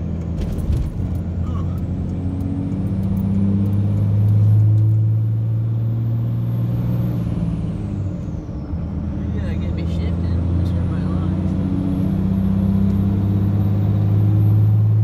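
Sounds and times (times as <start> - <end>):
diesel engine drone: 0.0 - 15.0.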